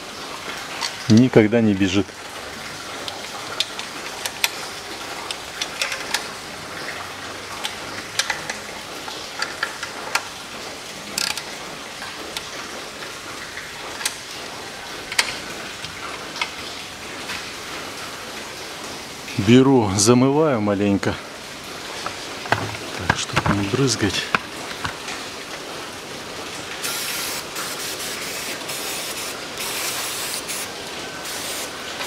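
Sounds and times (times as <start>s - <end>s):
torque wrench ratcheting clicks: 11.2s - 11.4s.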